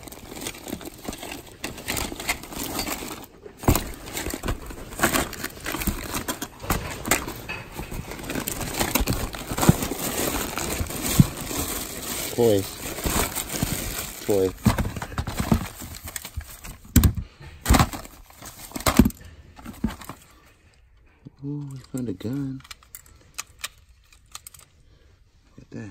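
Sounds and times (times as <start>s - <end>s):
items knocking together: 0.0s - 20.3s
plastic bags crinkling: 0.0s - 20.4s.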